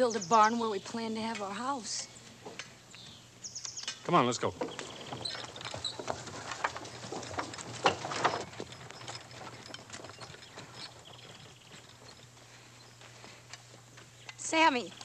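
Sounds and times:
birds chirping: 0.0 - 15.0
horse hooves clopping: 2.4 - 15.0
wagon wheels knocking: 4.1 - 12.9.

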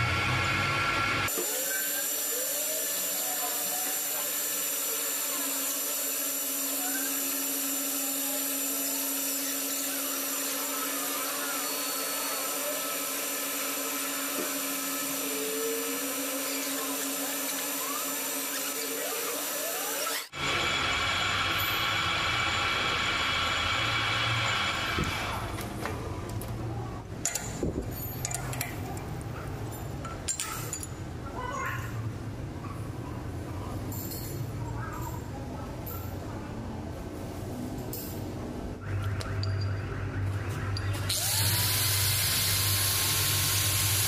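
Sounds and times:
lathe machine hum: 0.0 - 25.3
drill bit squeaking: 8.6 - 20.3.

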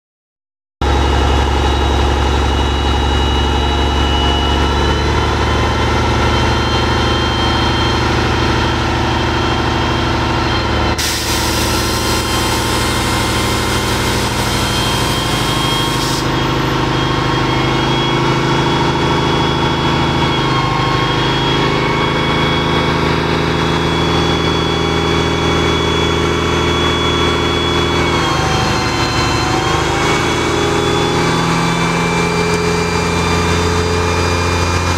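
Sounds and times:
diesel truck engine running: 0.8 - 34.9
loud air hiss: 11.0 - 16.3.

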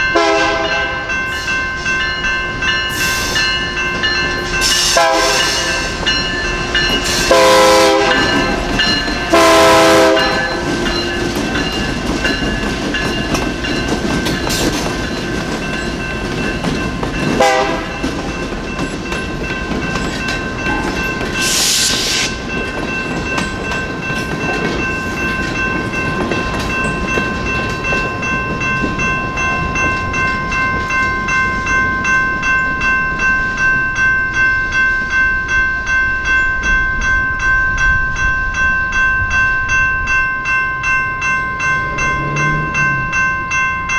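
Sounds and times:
crossing bell dinging: 0.0 - 43.9
train wheels clacking on rails: 0.0 - 43.9
train horn blasts: 0.1 - 1.1, 4.7 - 6.0, 6.8 - 8.6, 9.3 - 10.8, 17.4 - 18.0.

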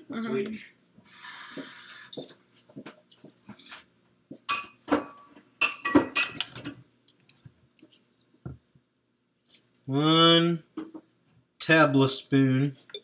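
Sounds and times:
kitchen utensils clinking: 4.5 - 6.8.

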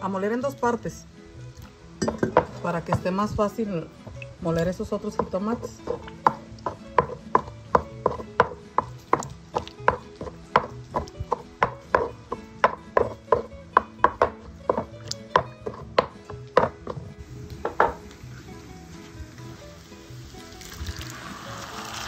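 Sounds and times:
stone pestle knocking in bowl: 2.0 - 3.2, 5.0 - 18.0.

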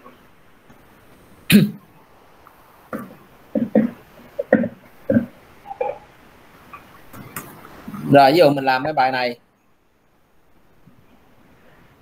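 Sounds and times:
person coughing: 1.5 - 1.8.

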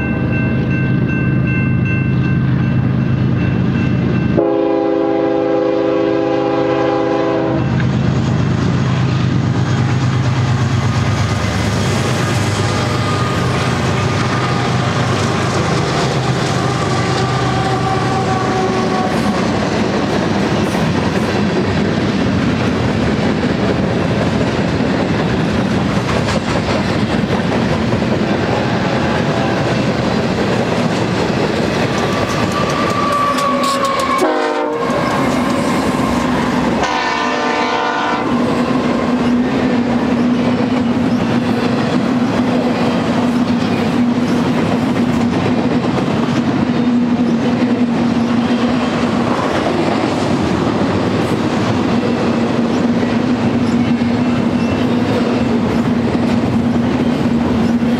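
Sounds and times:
locomotive engine drone: 0.0 - 57.9
train wheels clacking on rails: 0.0 - 57.9
train horn chord: 4.4 - 7.8, 32.6 - 38.8.

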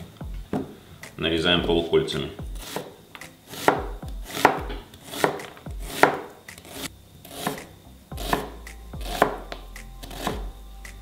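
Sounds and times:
knife slicing onion on board: 2.4 - 11.0.

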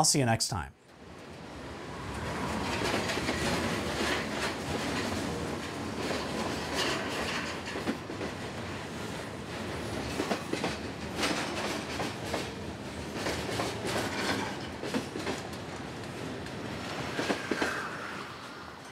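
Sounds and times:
train rumble: 1.2 - 18.9
train wheels clacking on rail joints: 2.6 - 8.5, 10.0 - 15.8.

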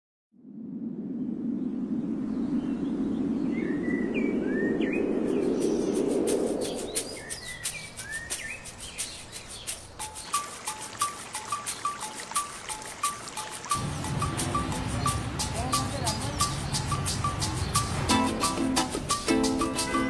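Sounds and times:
low rushing noise: 0.4 - 20.0
birds chirping: 2.4 - 20.0
sharp clicks and stepped notes: 7.0 - 20.0.

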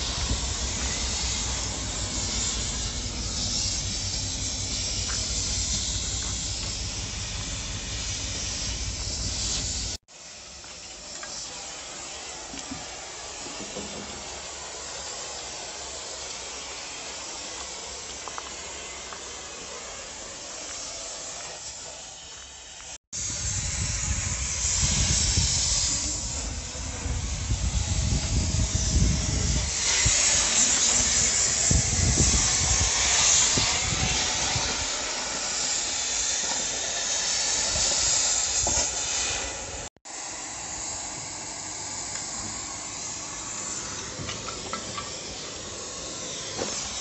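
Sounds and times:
gas cutting torch hissing: 0.0 - 47.0
wind rumbling on microphone: 23.2 - 34.9.

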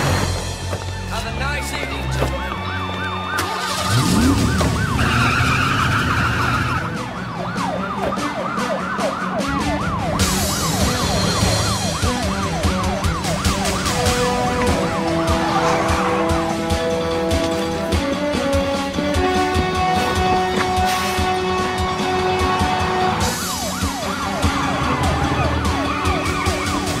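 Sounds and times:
steady music tones: 0.0 - 27.0
police siren yelping: 2.4 - 27.0
engine revving: 3.4 - 7.0
cars racing: 3.4 - 8.3, 13.5 - 27.0.

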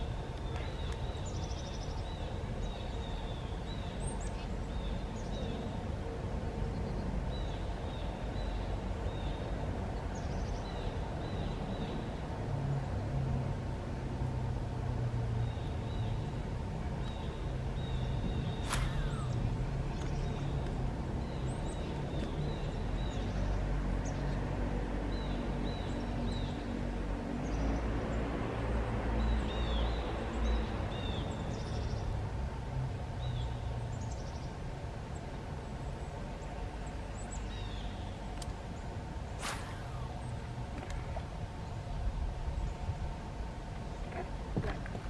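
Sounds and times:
small birds chirping: 0.0 - 5.9, 17.0 - 24.4, 33.2 - 42.9
sharp click: 18.6 - 19.4.

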